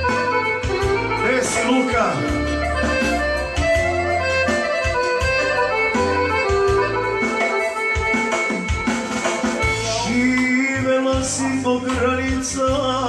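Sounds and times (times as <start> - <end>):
repeating bass: 0.0 - 10.4
ornamented instrumental melody: 0.0 - 13.0.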